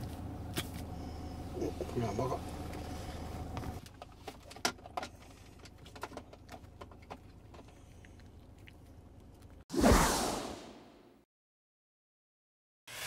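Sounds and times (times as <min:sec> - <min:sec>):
puppy chewing crunchily: 0:02.4 - 0:09.7.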